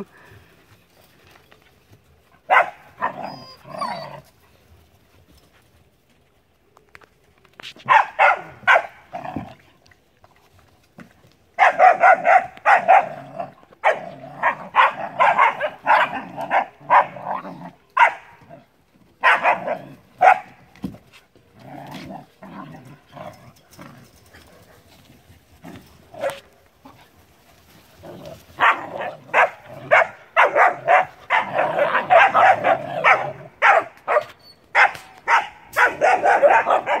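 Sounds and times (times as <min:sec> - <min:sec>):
puppies barking and yipping: 0:02.5 - 0:04.4, 0:13.8 - 0:17.4, 0:27.9 - 0:37.0.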